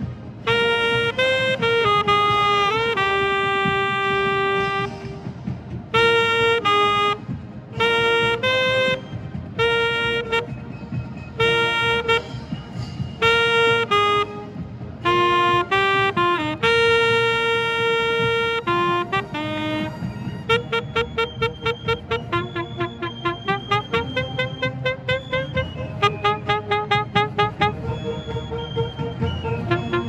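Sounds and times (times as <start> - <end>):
marching band playing: 0.0 - 30.0
alto saxophone phrases: 0.4 - 5.1, 5.9 - 10.6, 11.4 - 12.4, 13.2 - 28.3, 29.6 - 30.0.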